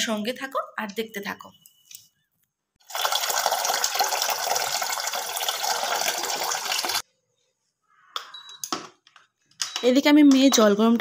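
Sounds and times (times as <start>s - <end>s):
tap water pouring into metal pot: 2.8s - 7.0s.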